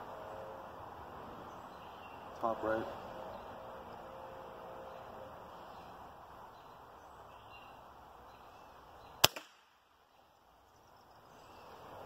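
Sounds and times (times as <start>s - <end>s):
air rifle shot crack: 9.2s - 9.8s.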